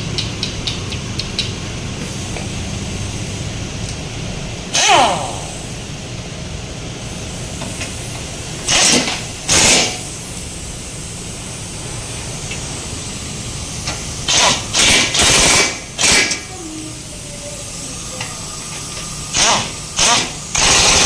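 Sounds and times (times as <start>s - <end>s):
workshop hum: 0.0s - 21.0s
pneumatic impact wrench bursts: 7.6s - 10.3s, 13.8s - 16.6s, 18.1s - 21.0s.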